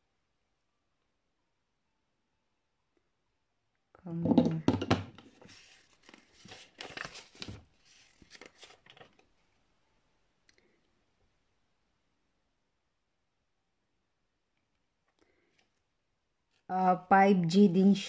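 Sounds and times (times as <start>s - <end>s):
paper rustling and crinkling: 5.3s - 9.5s.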